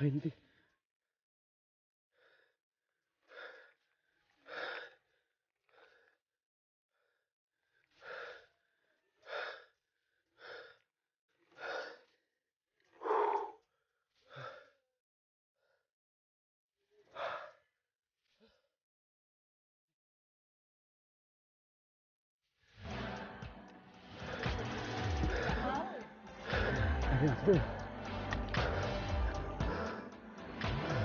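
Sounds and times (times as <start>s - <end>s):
person breathing hard: 2.2s - 2.6s, 3.2s - 6.2s, 7.9s - 8.6s, 9.2s - 10.8s, 11.4s - 12.2s, 12.9s - 13.6s, 14.2s - 14.8s, 17.1s - 17.6s, 22.9s - 31.0s.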